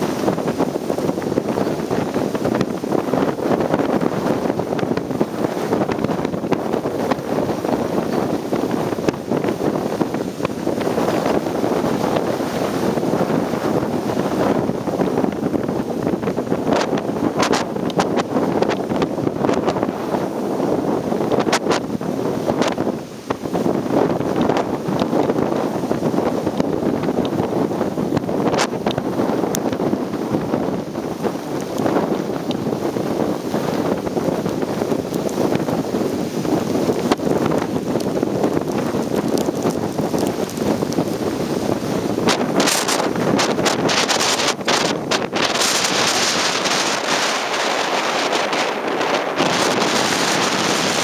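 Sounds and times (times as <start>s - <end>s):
storm wind buffeting microphone: 0.0s - 51.0s
waves breaking on rough sea: 0.0s - 51.0s
short crackles: 36.4s - 51.0s.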